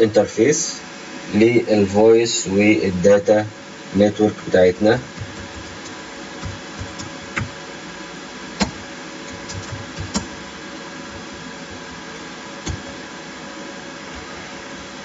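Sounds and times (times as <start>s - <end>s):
steady background hiss: 0.0s - 15.0s
keyboard key clicks: 8.6s - 10.4s.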